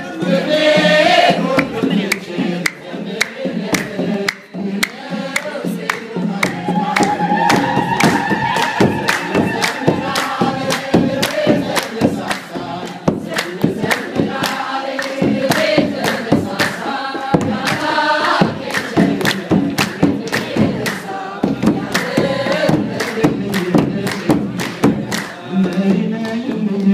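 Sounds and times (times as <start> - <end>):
congregation singing in chorus: 0.0 - 26.9
rhythmic hand-clapping: 0.2 - 26.9.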